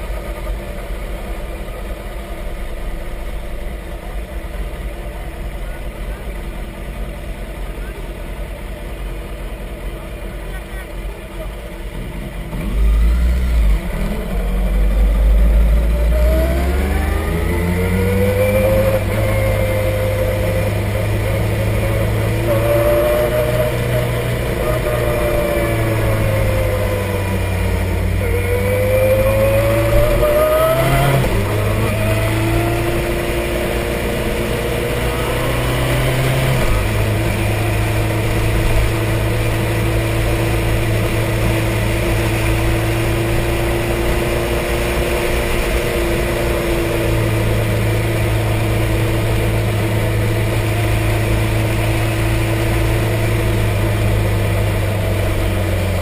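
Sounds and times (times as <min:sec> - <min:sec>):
motorcycle engine running: 0:00.0 - 0:56.0
road and wind noise: 0:00.0 - 0:56.0.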